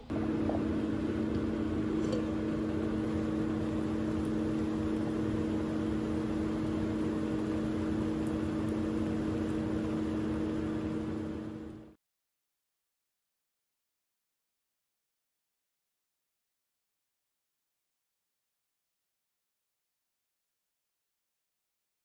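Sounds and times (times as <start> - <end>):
cooling fan whir: 0.0 - 12.0
induction cooktop electrical hum: 0.0 - 12.0.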